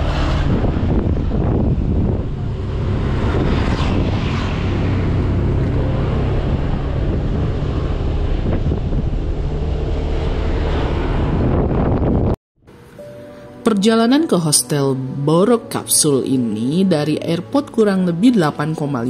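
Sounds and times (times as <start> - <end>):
motorcycle engine: 0.0 - 12.4
wind rushing over microphone: 0.0 - 12.4
road noise: 0.0 - 19.0.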